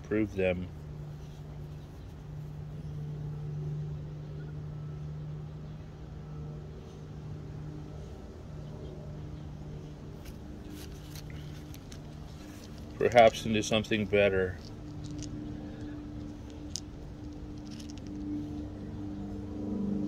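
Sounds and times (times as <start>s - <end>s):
low motor hum: 0.0s - 20.0s.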